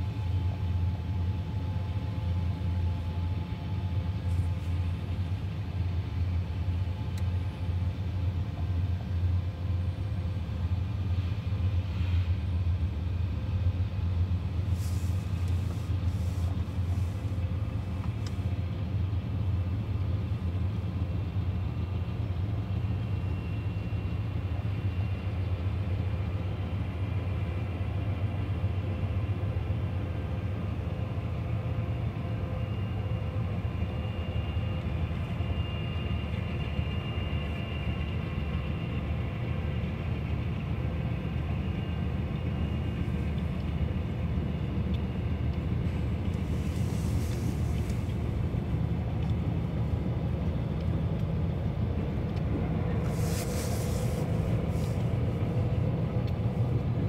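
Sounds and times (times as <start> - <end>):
freight train rumble: 0.0 - 57.0
short hiss: 14.7 - 17.4, 46.4 - 48.2, 53.0 - 55.1.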